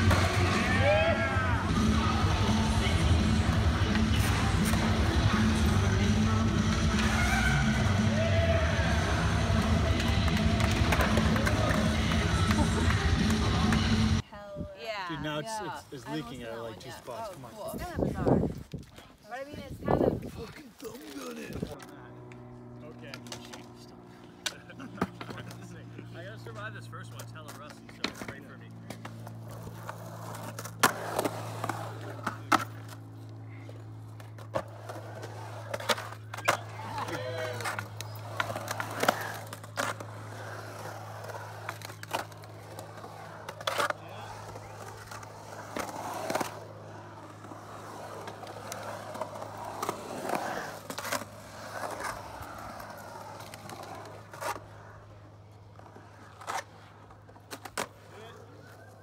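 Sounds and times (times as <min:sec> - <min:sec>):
skateboard wheels rolling on concrete: 0:00.0 - 0:14.2, 0:15.2 - 0:59.0
skateboard clacks: 0:08.1 - 0:14.2.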